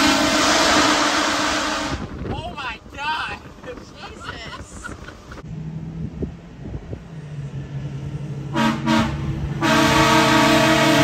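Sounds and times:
train horn blasts: 0.0s - 2.2s, 8.5s - 11.0s.

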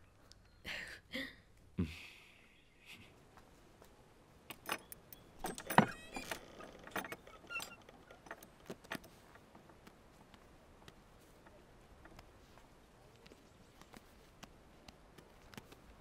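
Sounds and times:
short rattle: 4.5s - 9.5s
sharp clicks and knocks: 4.5s - 12.3s
faint squeak: 4.8s - 8.5s.

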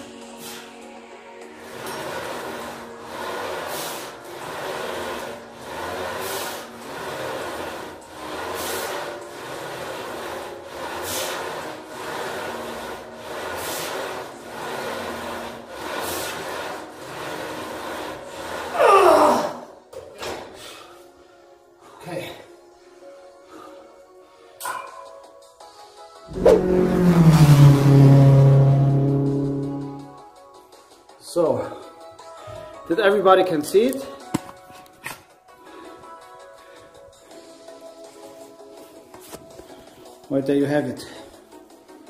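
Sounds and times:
man breathing hard: 20.5s - 21.9s
loud sound sliding down in pitch: 26.3s - 30.2s.

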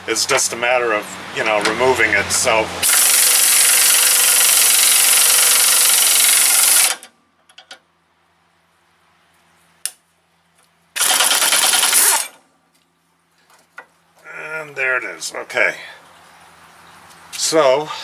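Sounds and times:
pneumatic impact wrench hammering: 2.8s - 7.1s, 11.0s - 12.4s.

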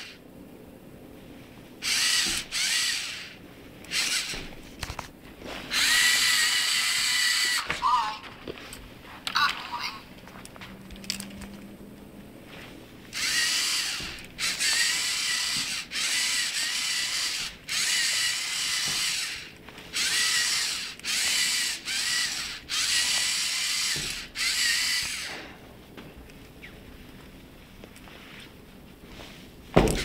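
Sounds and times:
robot electric motors whining: 0.0s - 0.2s, 1.8s - 4.8s, 5.6s - 8.1s, 13.1s - 25.5s.

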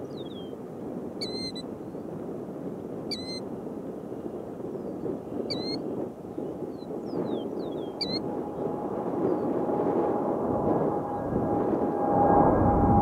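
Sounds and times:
steady low rumble: 6.1s - 13.0s.

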